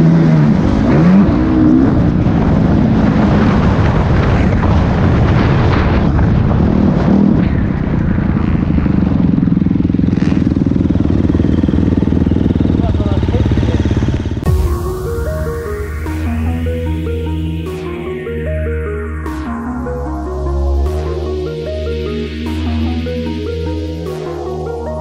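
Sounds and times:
dirt bike engine revving: 0.0s - 4.7s, 8.2s - 14.6s.

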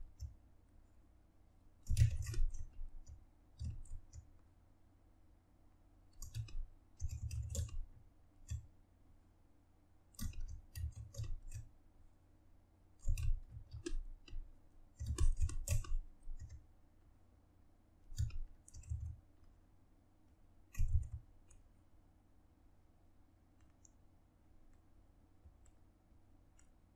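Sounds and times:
clicking with low thuds: 20.7s - 21.3s.

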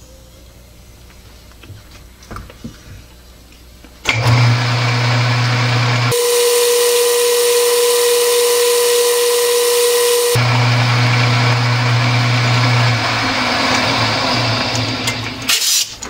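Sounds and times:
lathe running: 4.1s - 15.5s.

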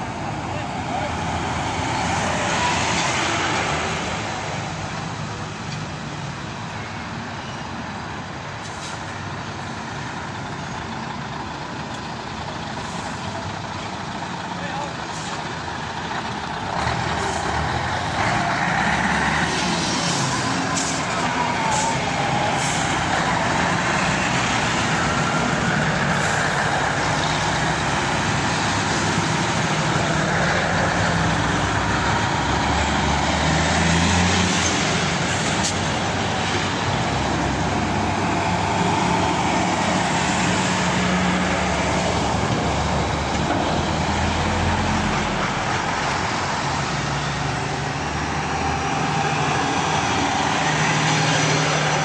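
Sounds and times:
tyres hissing on road: 0.0s - 10.8s, 11.6s - 52.0s
diesel lorries driving past: 0.0s - 52.0s.

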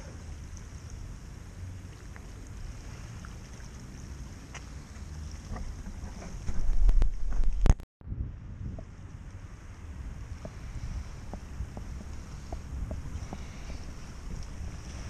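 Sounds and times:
wind buffeting microphone: 5.2s - 15.0s.

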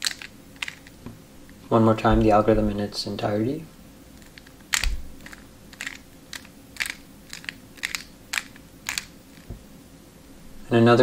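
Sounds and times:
plastic puzzle clicking: 0.0s - 1.0s, 4.2s - 9.5s.

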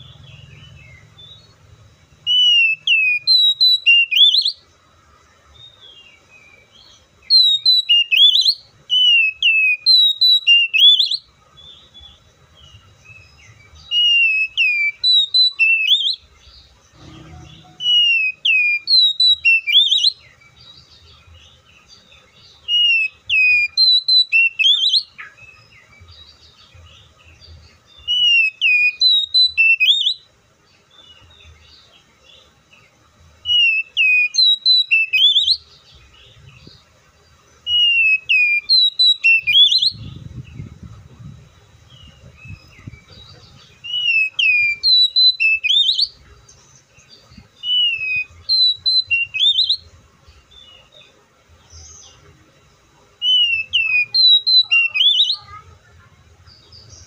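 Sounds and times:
bird singing whistled phrases: 2.2s - 4.6s, 7.2s - 11.3s, 13.8s - 16.3s, 17.0s - 20.3s, 22.7s - 25.7s, 28.0s - 30.3s, 33.4s - 35.6s, 37.7s - 40.6s, 43.8s - 46.2s, 47.6s - 49.8s, 53.2s - 55.5s.

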